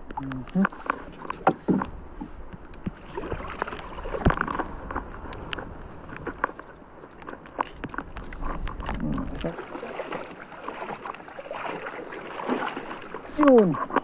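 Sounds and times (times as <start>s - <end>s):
light clicks and taps: 0.0s - 3.0s
wind rumble on microphone: 0.0s - 9.8s
water sloshing around boat: 0.0s - 14.0s.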